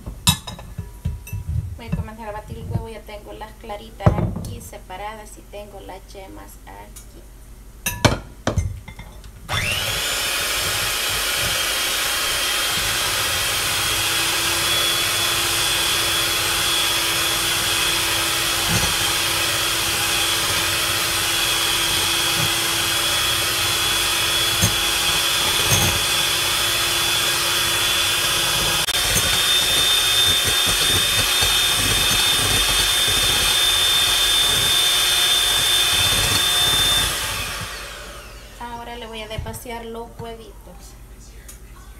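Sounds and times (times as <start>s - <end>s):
electric hand mixer whining: 9.5s - 38.9s.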